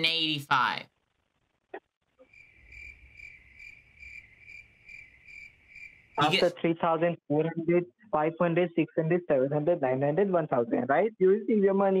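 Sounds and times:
faint cricket chirping: 0:02.2 - 0:06.5.

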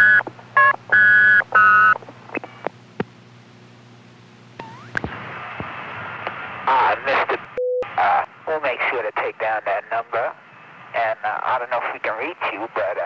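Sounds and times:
electronic tone beeps: 0:04.6 - 0:05.0, 0:07.6 - 0:07.9.

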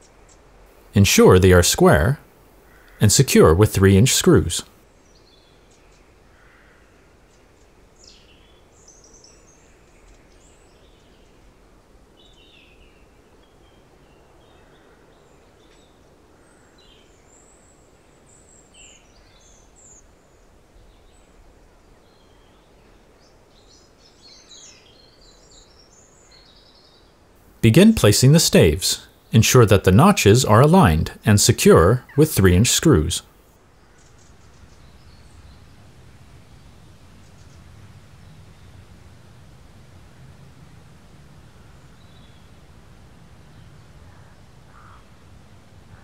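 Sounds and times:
low steady hiss: 0:00.0 - 0:46.0
small birds chirping: 0:12.2 - 0:46.0.

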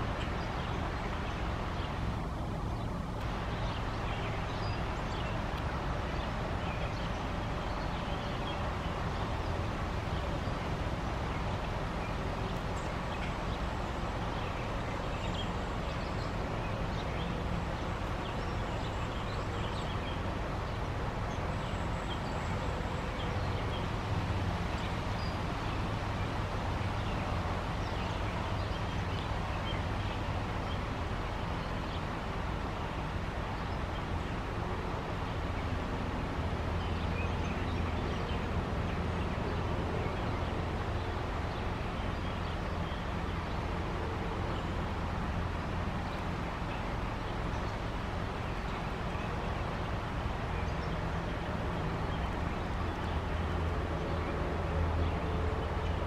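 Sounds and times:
songbird chirps and calls: 0:00.0 - 0:34.6.

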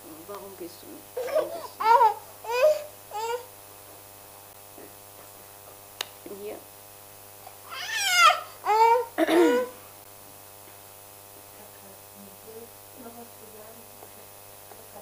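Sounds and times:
low mains hum: 0:00.0 - 0:15.0
baby crying: 0:01.2 - 0:03.5, 0:07.6 - 0:09.8.

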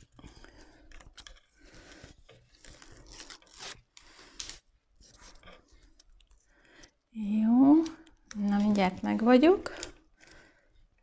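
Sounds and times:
vinyl film crinkling and rustling: 0:00.0 - 0:06.9, 0:07.7 - 0:10.0
film crackle: 0:00.0 - 0:07.0.

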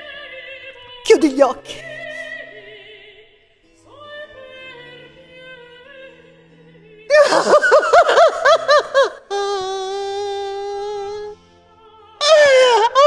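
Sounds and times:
soft sustained music: 0:00.0 - 0:13.0
woman wailing cries: 0:07.1 - 0:11.3, 0:12.2 - 0:13.0.

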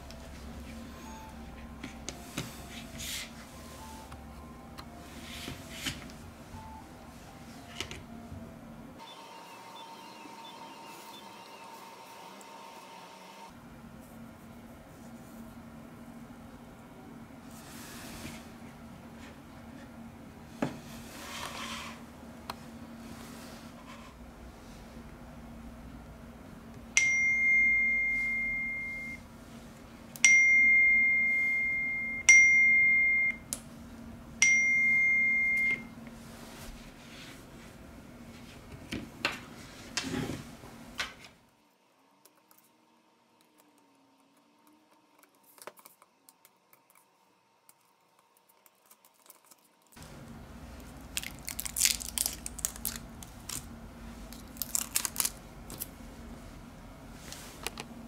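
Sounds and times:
tape crinkling: 0:50.8 - 0:56.0.

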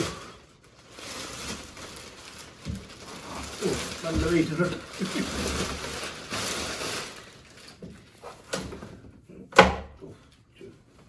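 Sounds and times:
plastic wrapping rustling: 0:00.0 - 0:09.0.

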